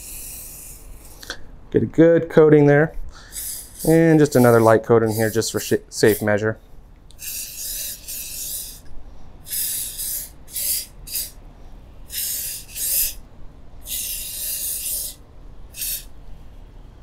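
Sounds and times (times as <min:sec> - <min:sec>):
aerosol can hissing: 0:00.0 - 0:01.2, 0:03.3 - 0:06.3, 0:07.2 - 0:08.9, 0:09.5 - 0:11.4, 0:12.1 - 0:13.2, 0:13.9 - 0:15.2, 0:15.8 - 0:16.1.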